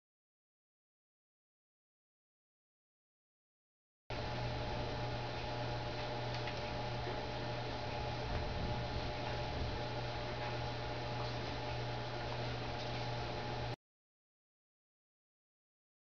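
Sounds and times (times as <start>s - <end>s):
low electrical hum: 4.1s - 13.8s.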